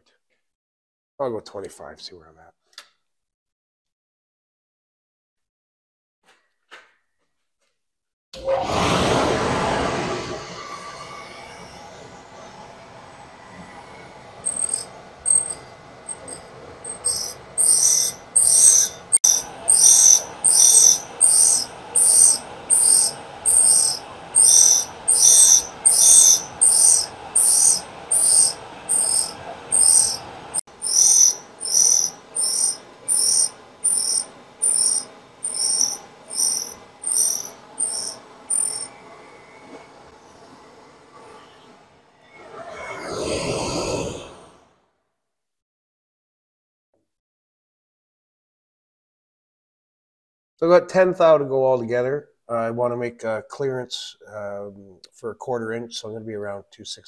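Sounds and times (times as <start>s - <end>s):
grinding wheel hissing bursts: 8.4s - 41.8s
grinder motor hum: 11.2s - 39.5s.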